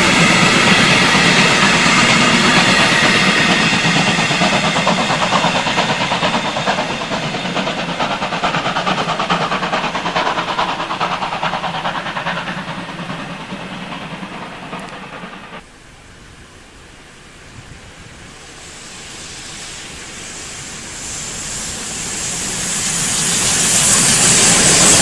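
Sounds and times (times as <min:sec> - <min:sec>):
train wheels clattering: 0:00.0 - 0:15.6.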